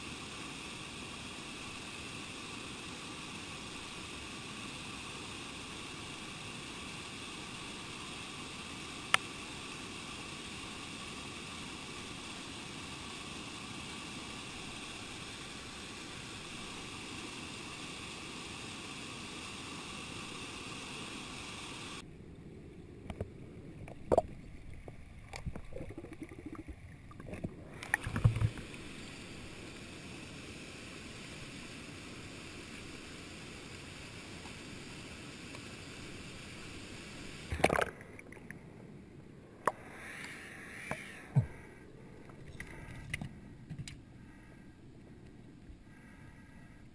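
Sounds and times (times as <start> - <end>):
stream water flowing: 0.0 - 43.2.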